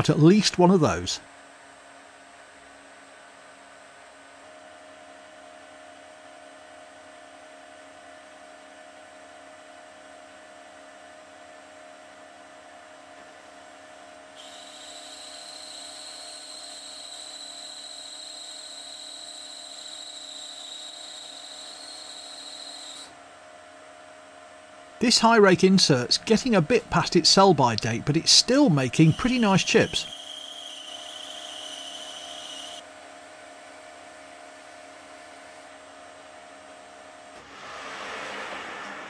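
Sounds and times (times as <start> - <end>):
metal lathe humming: 14.4 - 23.0
high steady whine: 25.0 - 30.3, 37.3 - 39.0.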